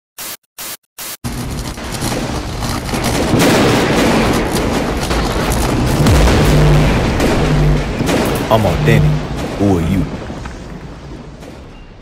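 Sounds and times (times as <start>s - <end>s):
stuttering static bursts: 0.2s - 10.3s
crackling electric explosion rumble: 1.3s - 11.7s.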